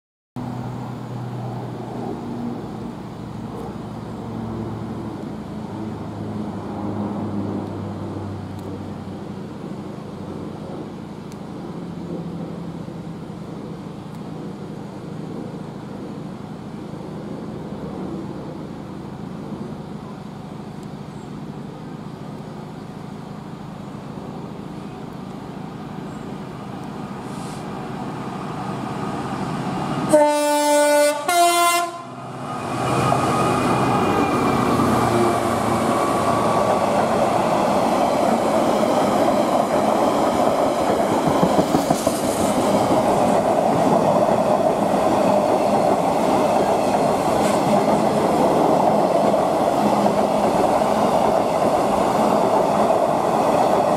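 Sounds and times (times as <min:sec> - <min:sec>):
diesel locomotive passing: 0:00.4 - 0:53.9
train wagons running by: 0:00.4 - 0:53.9
two-tone locomotive horn: 0:30.0 - 0:32.2.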